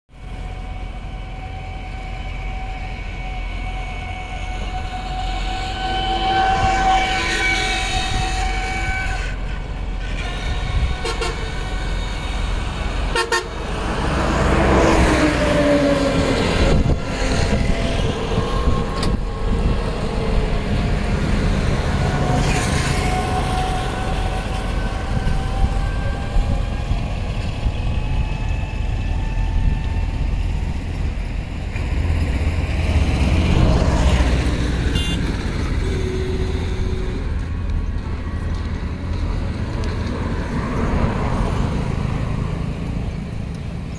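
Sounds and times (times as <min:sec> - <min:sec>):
road traffic rumble: 0:00.1 - 0:43.9
car horns tooting: 0:10.2 - 0:11.5, 0:13.1 - 0:13.6, 0:34.9 - 0:37.1
vehicle passing by: 0:12.4 - 0:24.0.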